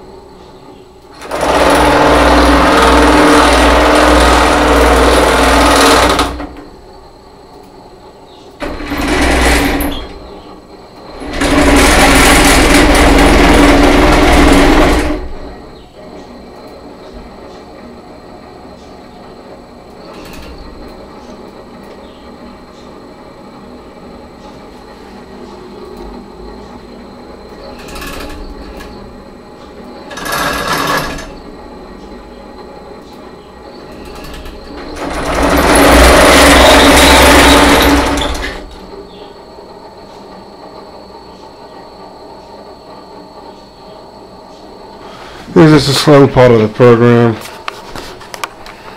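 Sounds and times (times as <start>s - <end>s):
cnc router motors whirring: 9.9s - 48.9s.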